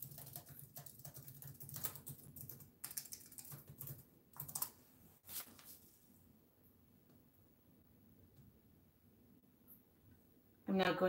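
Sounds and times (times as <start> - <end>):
typing on computer keyboard: 0.0 - 4.8.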